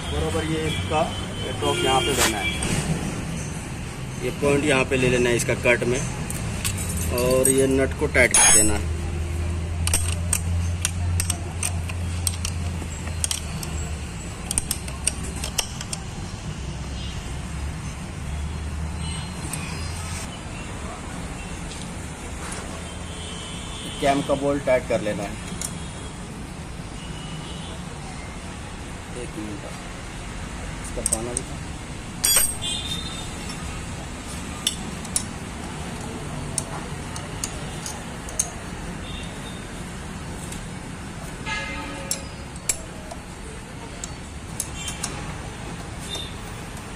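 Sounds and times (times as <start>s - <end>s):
spanner clicking on metal nut: 9.7s - 16.1s, 30.8s - 31.5s, 32.2s - 32.7s, 34.6s - 39.2s, 42.0s - 43.3s, 43.9s - 45.2s.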